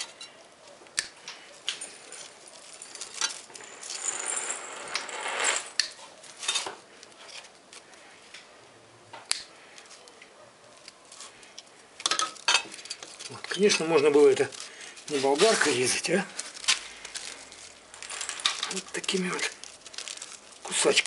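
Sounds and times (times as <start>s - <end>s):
metallic clicks and clinks: 1.2s - 5.9s
tools scraping wire: 10.9s - 20.7s.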